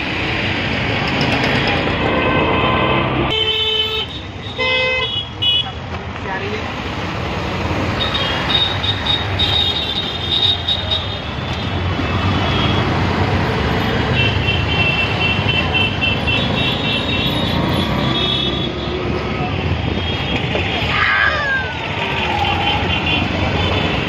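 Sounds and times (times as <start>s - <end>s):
auto-rickshaw engine rumbling: 0.0s - 24.0s
road traffic: 0.0s - 24.0s
drawn-out vehicle horns: 14.0s - 18.9s.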